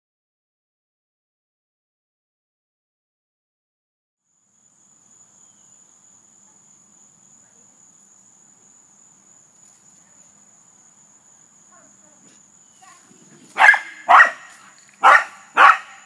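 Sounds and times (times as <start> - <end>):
crickets chirring: 4.2 - 16.0
low outdoor background noise: 4.2 - 16.0.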